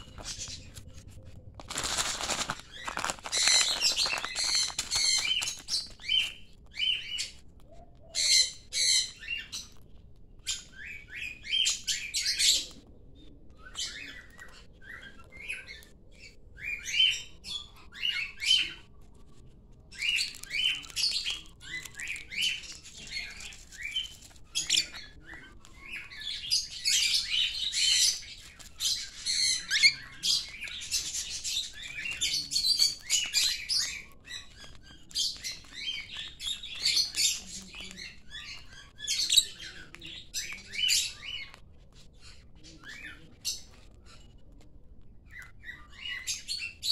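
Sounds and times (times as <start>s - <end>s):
parrots chirping and squawking: 0.0s - 1.0s, 1.6s - 9.8s, 20.0s - 44.3s.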